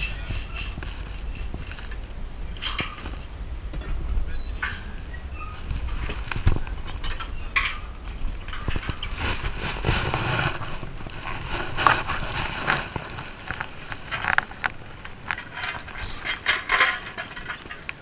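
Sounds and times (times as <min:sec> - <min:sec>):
wind buffeting microphone: 0:00.0 - 0:18.0
metallic clicks and rattles: 0:11.8 - 0:18.0.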